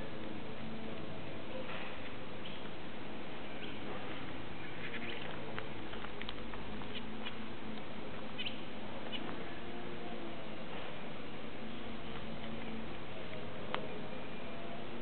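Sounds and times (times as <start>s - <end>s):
background hiss: 0.0s - 15.0s
finches chirping: 3.5s - 5.4s, 8.3s - 9.6s.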